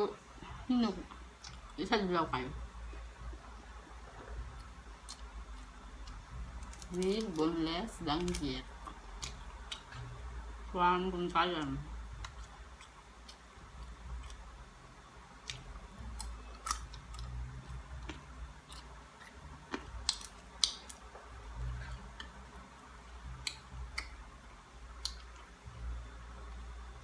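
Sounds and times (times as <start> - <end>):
chewing: 15.4 - 21.0.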